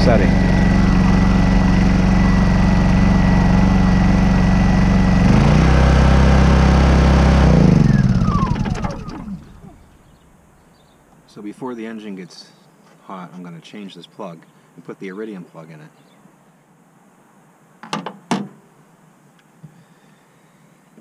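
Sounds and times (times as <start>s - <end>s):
generator engine idling: 0.0s - 10.0s
engine winding down: 0.0s - 10.1s.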